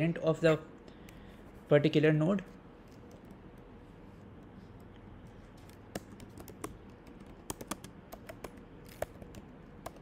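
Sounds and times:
keyboard key clicks: 0:05.6 - 0:10.0.

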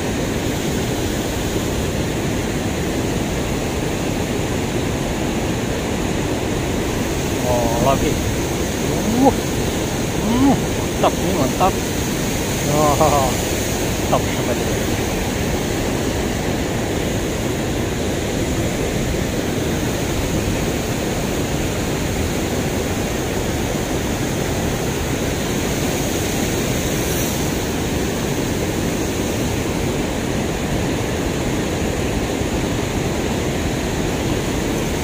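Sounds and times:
water rushing over weir: 0:00.0 - 0:35.0.

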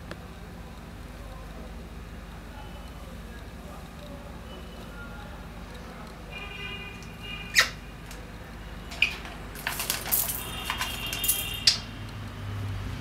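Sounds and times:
parrot squeaking: 0:07.5 - 0:07.8, 0:08.9 - 0:09.3, 0:11.5 - 0:11.9.

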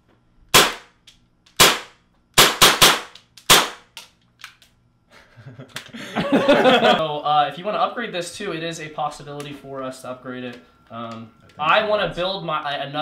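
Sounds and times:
airsoft pistol shots: 0:00.5 - 0:01.0, 0:01.6 - 0:04.0.

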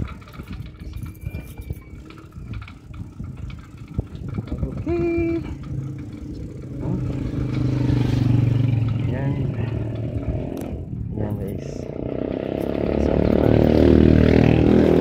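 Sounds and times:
tricycle frame rattling over bumps: 0:00.0 - 0:15.0
vehicle engine hum: 0:00.0 - 0:15.0.

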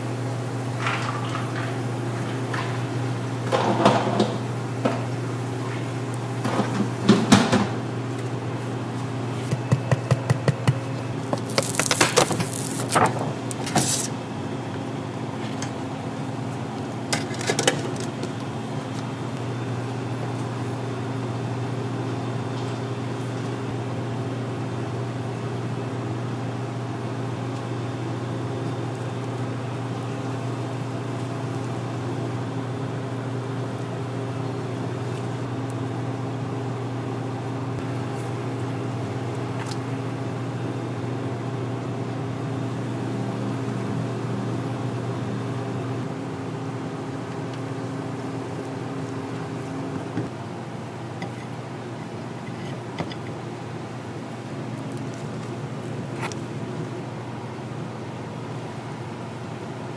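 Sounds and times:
electrical hum of kitchen equipment: 0:00.0 - 0:59.9.

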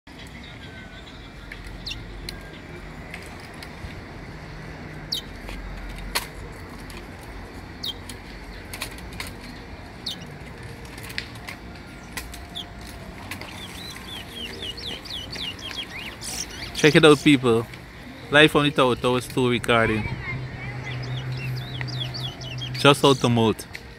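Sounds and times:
bird chirping rapidly: 0:05.1 - 0:05.3, 0:07.8 - 0:08.0, 0:10.0 - 0:10.3, 0:13.5 - 0:17.3, 0:20.7 - 0:23.4
finch calling in sharp notes: 0:13.5 - 0:17.2, 0:20.8 - 0:23.3.

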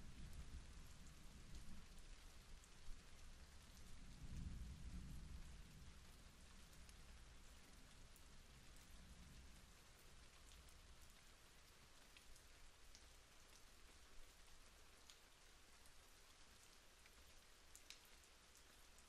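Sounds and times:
light rain falling: 0:00.0 - 0:19.0
raindrops ticking: 0:05.4 - 0:19.0.

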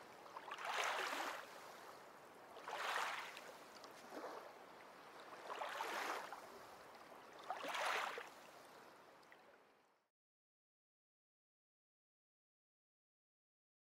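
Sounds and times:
sea waves washing in: 0:00.0 - 0:06.7, 0:07.5 - 0:08.5.

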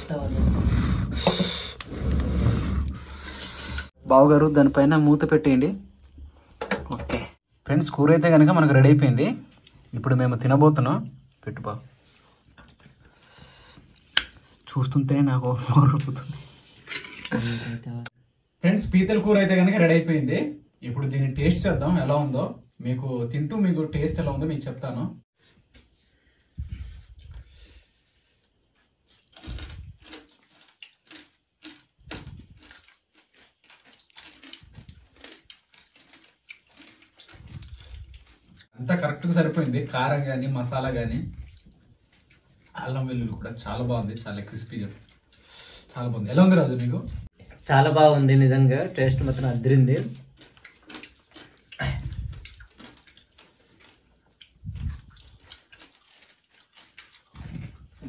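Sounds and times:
men's wordless mouth sounds: 0:00.0 - 0:03.9, 0:51.7 - 0:52.6
people chewing with crunches: 0:00.0 - 0:04.0, 0:09.4 - 0:18.2, 0:25.4 - 0:58.0.

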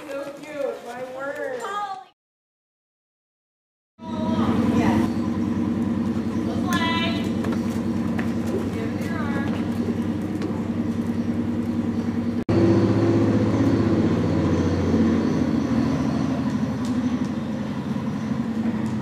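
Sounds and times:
low mechanical hum: 0:04.0 - 0:19.0.

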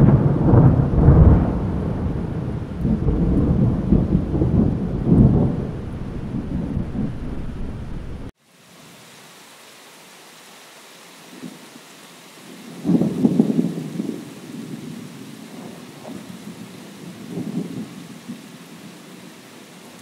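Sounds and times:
rumbling thunder: 0:00.0 - 0:08.3
rain hiss: 0:00.0 - 0:20.0.

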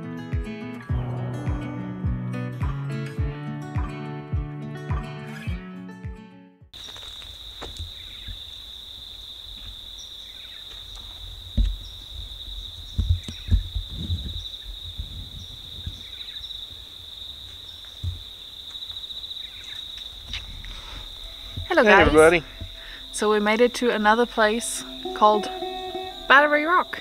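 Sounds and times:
insects trilling: 0:06.8 - 0:27.0
low thumps: 0:11.2 - 0:16.0, 0:18.0 - 0:18.3, 0:20.2 - 0:23.0.

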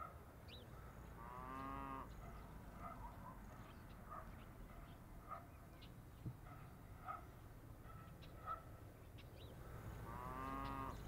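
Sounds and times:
cow mooing: 0:01.2 - 0:02.1, 0:10.0 - 0:11.0.

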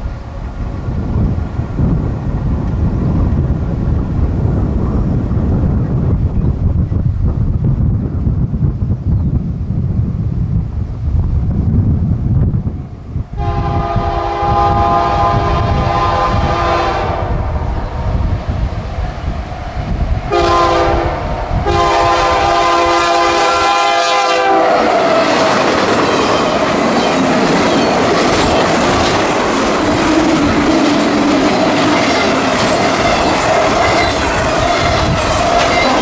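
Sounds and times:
locomotive air horn blasts: 0:13.4 - 0:17.4, 0:20.3 - 0:25.0
train wheels clattering on rails: 0:24.8 - 0:36.0.

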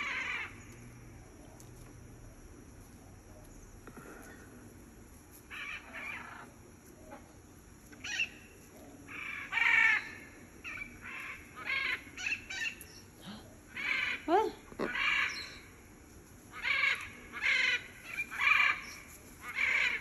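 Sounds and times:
macaw squawking: 0:08.0 - 0:08.4, 0:09.1 - 0:12.9, 0:13.7 - 0:15.7, 0:16.5 - 0:20.0.

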